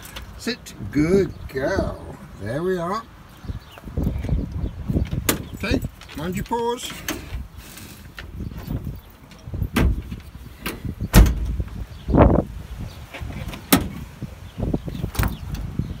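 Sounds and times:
knocks and clunks: 5.0 - 6.2, 8.1 - 11.9, 13.1 - 14.1.

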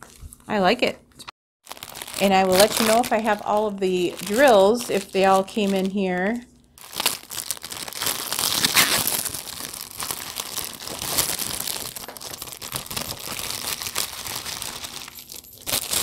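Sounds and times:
plastic bag crinkling: 1.6 - 16.0.

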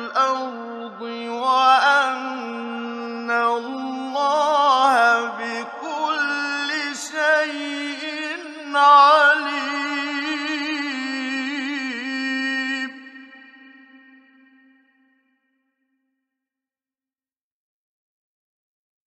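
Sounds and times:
man chanting melodically: 0.0 - 14.8.

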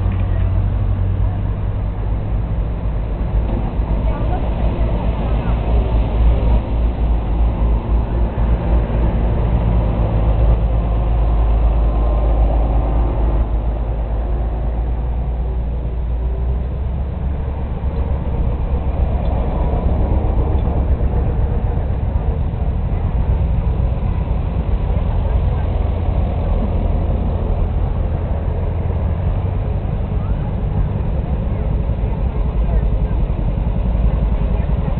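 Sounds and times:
tractor engines rumbling: 0.0 - 34.9.

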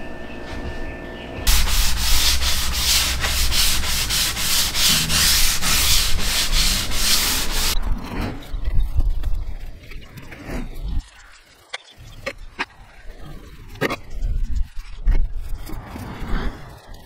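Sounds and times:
sandpaper rubbing on wood: 1.5 - 7.8.

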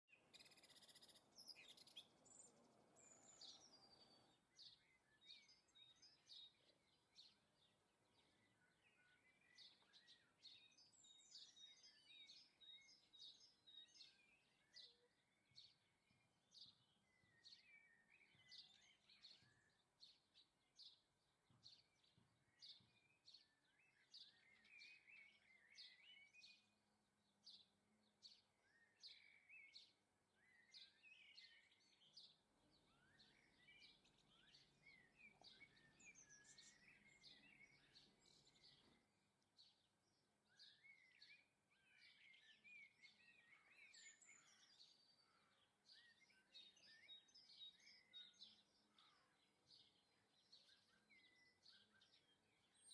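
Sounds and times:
songbird chirping and warbling: 0.1 - 52.9.

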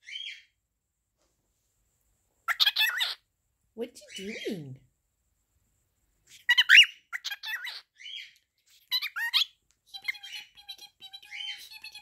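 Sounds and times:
cockatiel chirping and squawking: 0.0 - 0.5, 2.5 - 3.2, 6.3 - 12.0.

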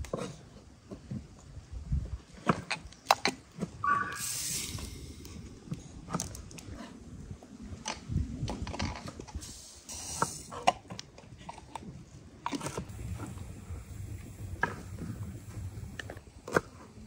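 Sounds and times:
brief hiss: 3.9 - 5.2.

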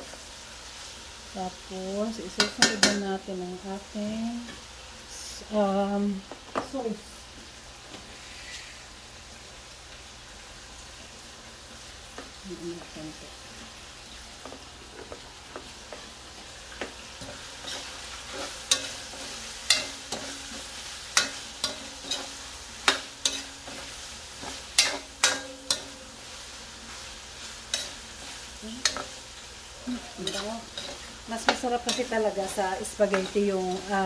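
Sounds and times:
meat sizzling in a wok: 0.0 - 34.0
metal spoon scraping a pan: 17.2 - 29.2, 29.9 - 34.0.

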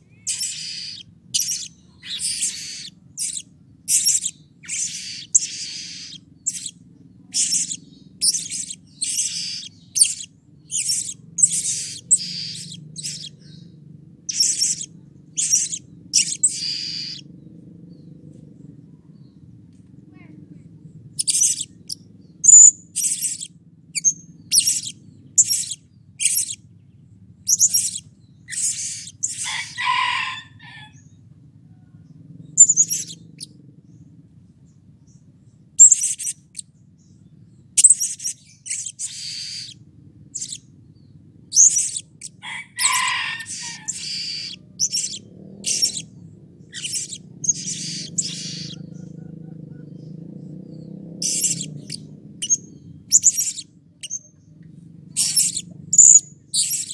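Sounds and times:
faint low hum: 0.0 - 56.9
parrot shrill call notes: 0.2 - 13.3, 14.3 - 17.2, 27.6 - 31.0, 37.8 - 39.8, 41.5 - 46.1, 46.7 - 48.9.

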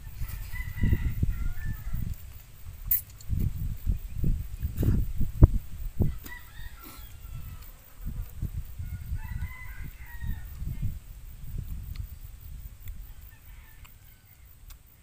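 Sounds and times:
rooster crowing faintly: 0.0 - 2.2, 6.0 - 8.1, 8.8 - 10.9, 13.0 - 14.6
wind buffeting microphone: 0.0 - 13.6.

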